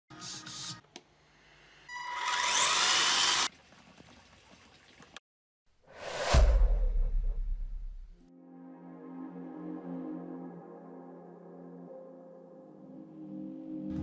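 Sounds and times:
rising whoosh: 5.9 - 8.2
deep cinematic boom: 6.2 - 8.3.

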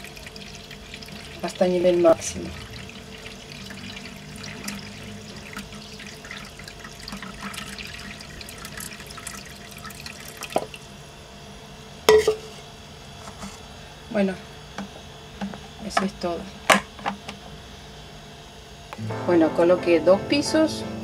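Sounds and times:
water pouring into reservoir: 0.0 - 10.9.

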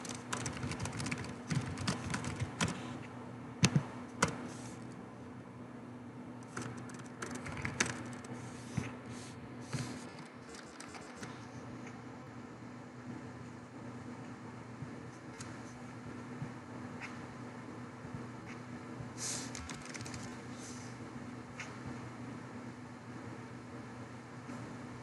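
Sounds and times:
computer keyboard typing: 0.0 - 3.0, 3.6 - 4.5, 6.4 - 8.4, 10.0 - 11.5, 19.5 - 20.5
faint steady hum: 0.0 - 25.0.

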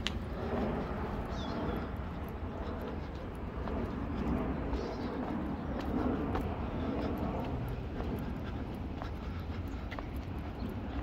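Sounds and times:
distant city traffic rumble: 0.0 - 11.0
bird chirp: 1.2 - 1.9.

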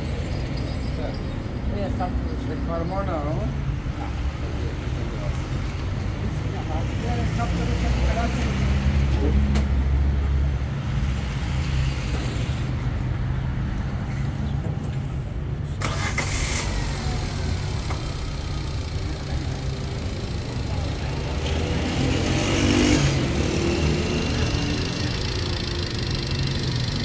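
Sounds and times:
car engine idling: 15.8 - 27.0.

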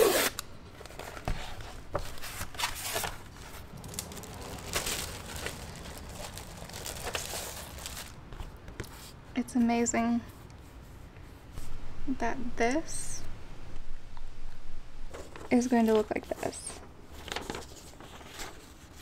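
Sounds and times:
plastic bag crinkling: 2.0 - 8.6.

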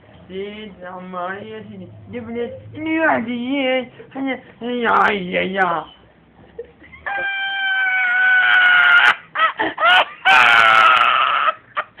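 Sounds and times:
man crying out high-pitched: 7.0 - 11.6.

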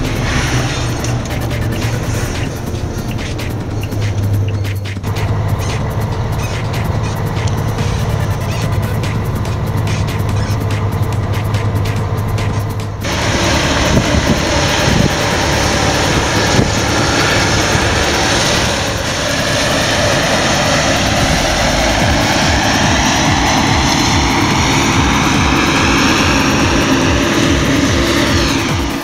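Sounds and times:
combine harvester drone: 0.0 - 29.0
high machine whine: 0.0 - 29.0.

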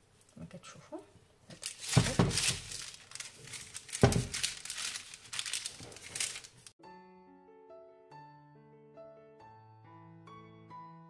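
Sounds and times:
paper crinkling and rustling: 1.5 - 6.8
baking tray thuds: 1.6 - 2.8, 3.9 - 4.6.

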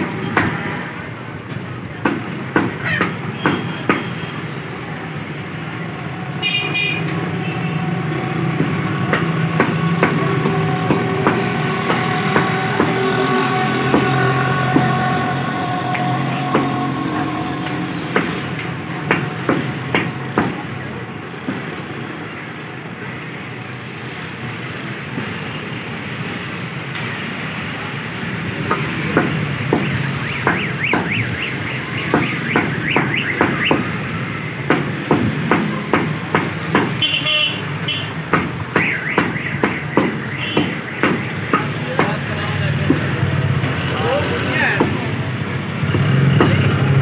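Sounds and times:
background din: 6.0 - 21.8.

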